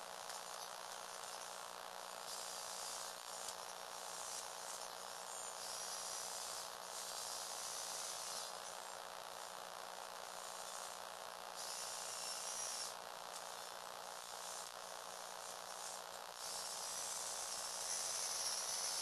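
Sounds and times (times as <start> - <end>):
toy electric motors whirring: 2.2 - 9.0, 11.6 - 13.6, 14.2 - 19.0.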